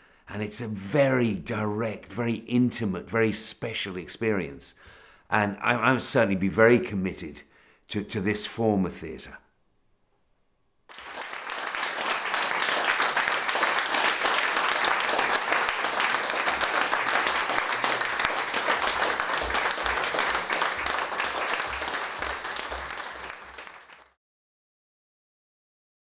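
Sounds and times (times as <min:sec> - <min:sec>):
audience clapping: 0:10.9 - 0:24.2.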